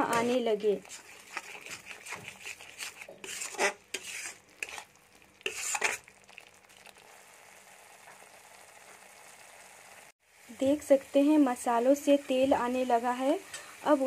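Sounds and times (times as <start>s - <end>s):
spoon scraping metal pan: 0.0s - 6.1s
faint sizzle of frying: 0.0s - 14.0s.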